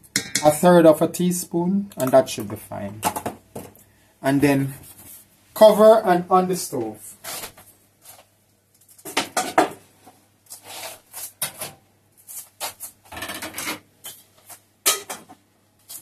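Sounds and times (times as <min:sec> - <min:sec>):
kitchenware knocks and clinks: 0:00.1 - 0:00.5, 0:14.9 - 0:15.4.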